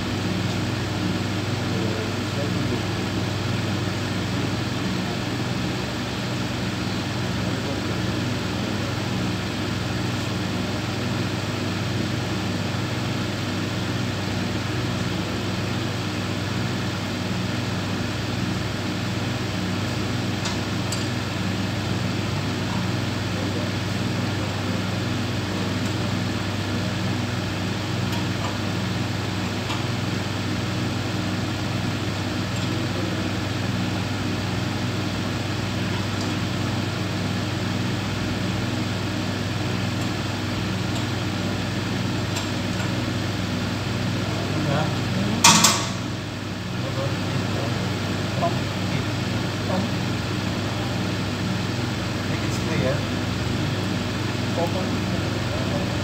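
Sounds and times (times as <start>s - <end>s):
industrial machinery drone: 0.0s - 56.0s.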